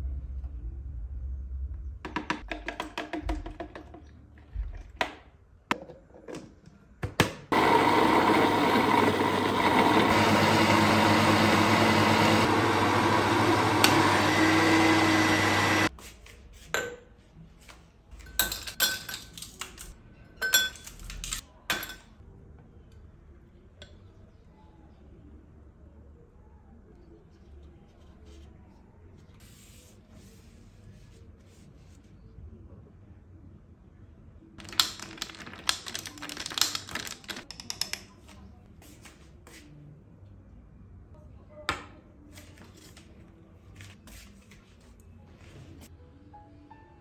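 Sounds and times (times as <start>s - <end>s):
electric appliance motor running: 7.5s - 15.9s.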